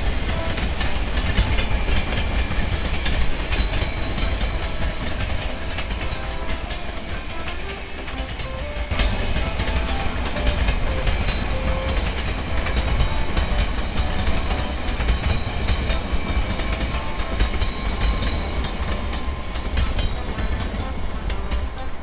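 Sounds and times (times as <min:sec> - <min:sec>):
train rumbling and wheels clacking: 0:00.0 - 0:22.0.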